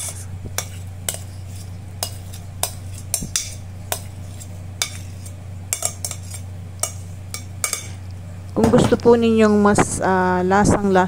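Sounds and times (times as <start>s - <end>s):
spoon scraping a bowl: 0.0s - 8.0s
steady low hum: 0.0s - 11.0s.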